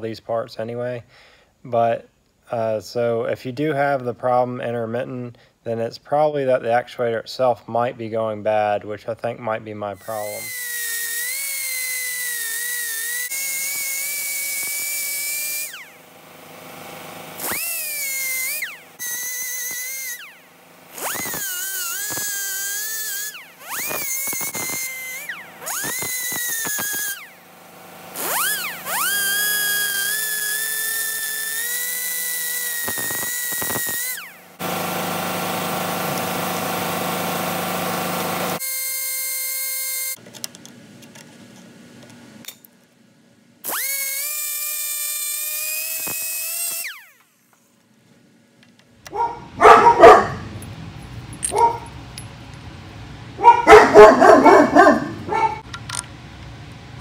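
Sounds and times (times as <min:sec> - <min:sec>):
sharp bursts: 0:10.0 - 0:40.2, 0:43.6 - 0:47.4
rotary tool grinding whine: 0:10.0 - 0:41.2, 0:43.6 - 0:47.8.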